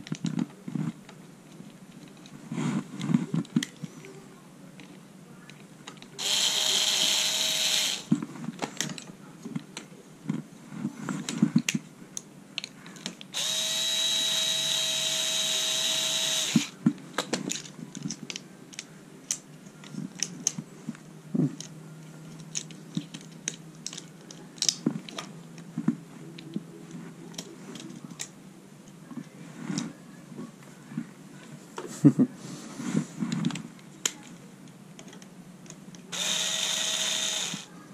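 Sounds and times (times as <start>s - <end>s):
electric screwdriver whine: 6.2s - 8.1s, 13.4s - 16.8s, 36.1s - 37.7s.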